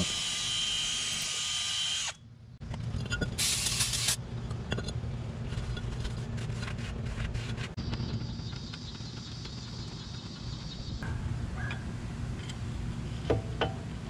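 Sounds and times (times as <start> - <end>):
power tool abrasive disc whining: 0.0 - 2.2
low steady hum: 1.9 - 14.0.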